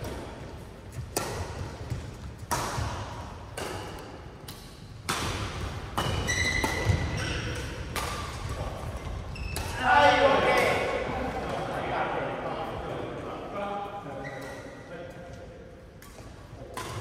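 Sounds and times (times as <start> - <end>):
rackets striking shuttlecock: 0.0 - 11.1, 15.9 - 17.0
shoes squeaking on court: 6.0 - 7.7, 8.4 - 9.8, 14.2 - 14.8.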